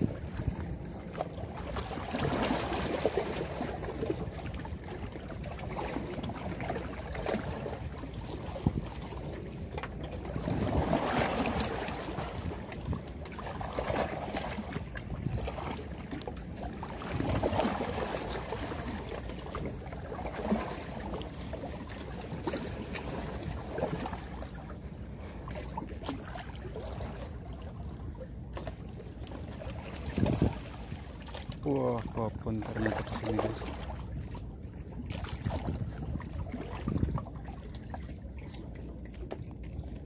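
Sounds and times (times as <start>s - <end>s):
wind on microphone: 0.0s - 1.1s, 8.4s - 9.1s, 30.0s - 31.1s, 32.8s - 38.1s
water slapping against concrete: 29.8s - 34.4s.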